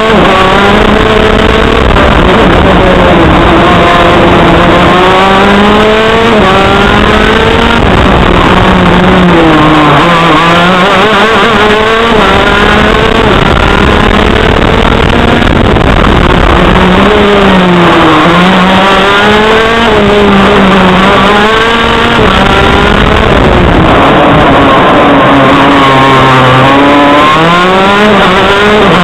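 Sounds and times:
kart engine revving hard: 0.0s - 29.0s
wind and track noise: 0.0s - 29.0s.

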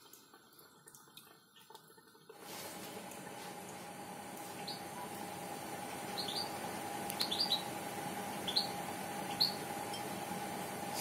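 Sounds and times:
faint steady hum: 0.0s - 11.0s
high bird chirps: 4.6s - 4.9s, 6.1s - 6.6s, 7.2s - 7.7s, 8.3s - 9.7s.

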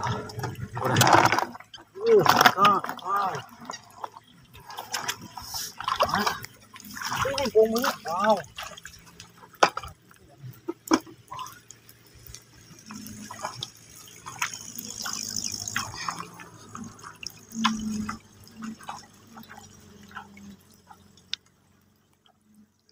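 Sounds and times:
bare feet splashing in muddy water: 0.0s - 22.3s
water dripping and trickling: 0.0s - 22.9s.

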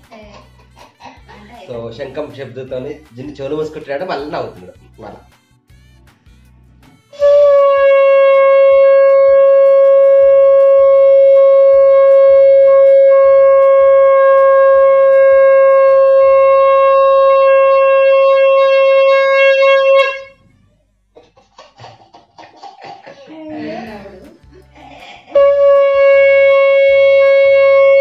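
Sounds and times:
conch shell blown: 7.1s - 20.4s, 25.3s - 28.0s.

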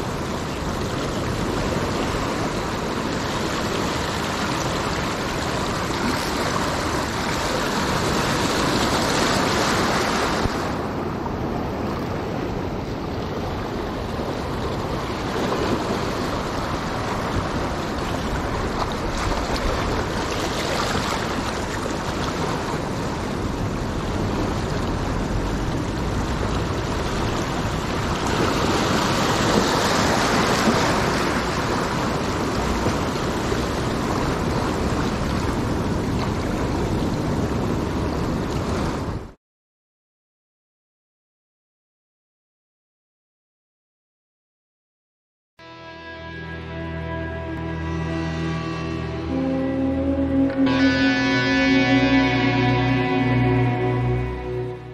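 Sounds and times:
waves washing over rocks: 0.0s - 39.3s.

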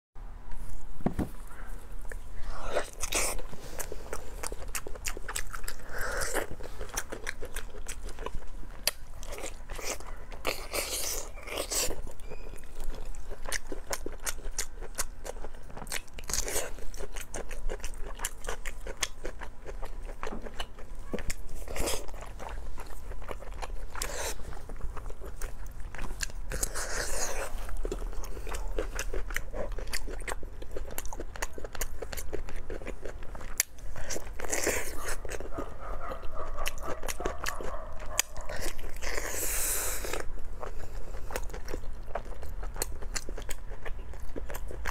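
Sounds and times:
person chewing: 1.4s - 44.9s.

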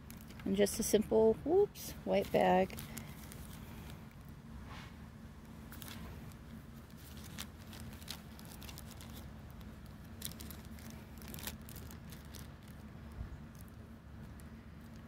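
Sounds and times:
plastic bag crinkling: 0.0s - 0.5s, 2.0s - 4.3s, 5.7s - 15.0s
low steady background hum: 0.0s - 15.0s
cloth pouch rustling: 2.2s - 4.0s, 5.7s - 12.8s.

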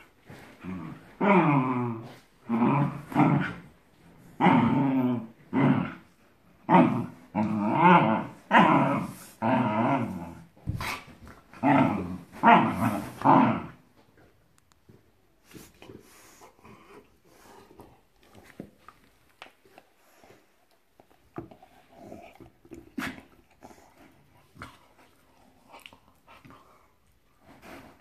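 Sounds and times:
dogs growling in play: 0.0s - 14.3s, 19.9s - 28.0s.

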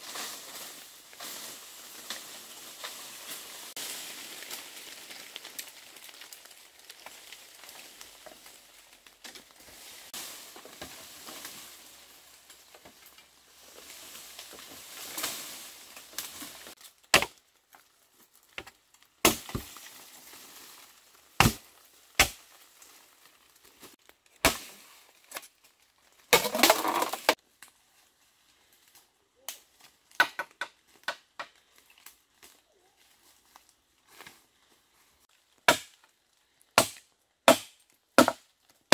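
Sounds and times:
bamboo rustling and crackling: 0.0s - 38.9s
bamboo cracking and splitting: 0.1s - 34.6s, 35.2s - 38.9s
chopping blows on bamboo: 21.4s - 21.6s, 22.2s - 22.4s, 35.7s - 36.0s, 36.8s - 38.4s.

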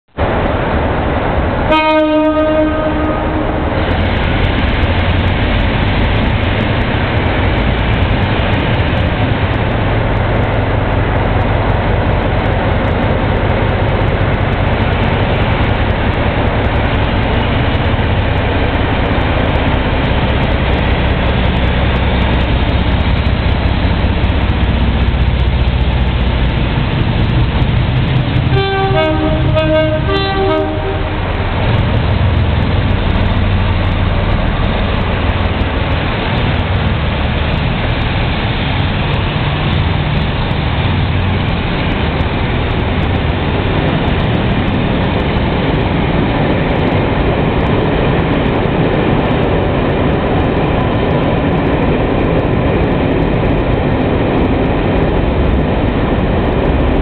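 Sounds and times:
locomotive horn: 1.7s - 3.7s, 28.4s - 31.3s.

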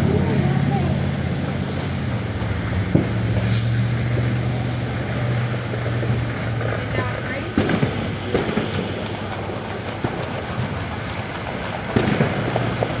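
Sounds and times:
low engine hum: 0.0s - 13.0s
sharp pop: 2.9s - 3.8s.

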